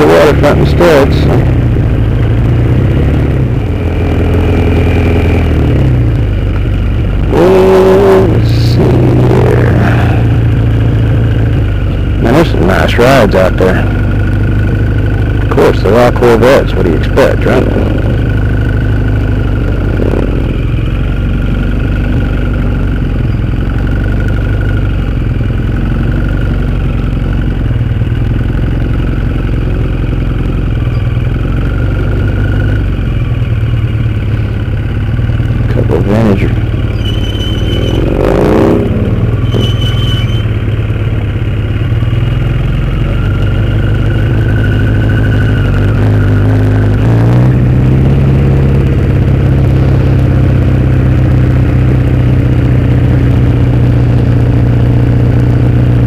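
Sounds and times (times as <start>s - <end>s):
motorcycle engine running: 0.0s - 56.0s
sliding pitch sounds: 36.2s - 41.3s
high squeaks: 36.9s - 38.4s, 39.3s - 40.6s.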